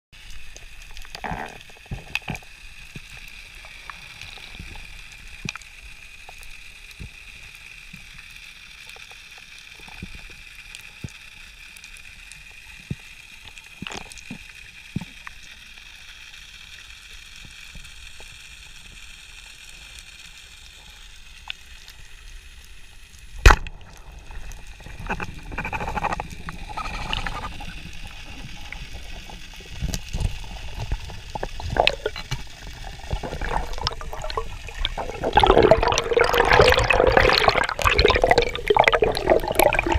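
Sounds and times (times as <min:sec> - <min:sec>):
small underwater clicks and crackles: 0:00.2 - 0:39.9
underwater hiss: 0:00.2 - 0:39.9
speargun firing crack: 0:23.4 - 0:23.8
water churning and sloshing: 0:23.5 - 0:39.9.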